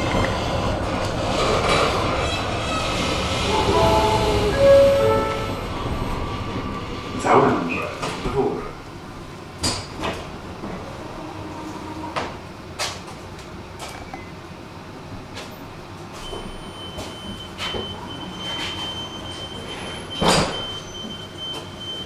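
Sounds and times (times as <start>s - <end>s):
tram rumbling: 0.0s - 22.0s
steady high tone: 3.4s - 5.9s.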